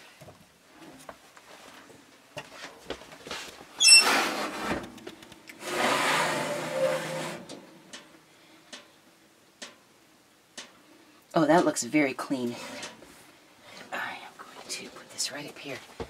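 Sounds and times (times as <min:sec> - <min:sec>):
metal oven rack scraping: 0:03.8 - 0:04.8, 0:05.6 - 0:07.8, 0:12.5 - 0:13.0.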